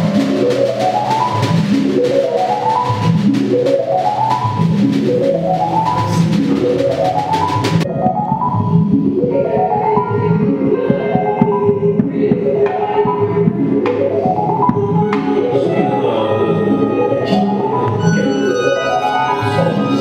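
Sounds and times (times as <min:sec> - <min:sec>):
drums: 0:00.0 - 0:18.5
melodic keyboard figure: 0:00.0 - 0:20.0.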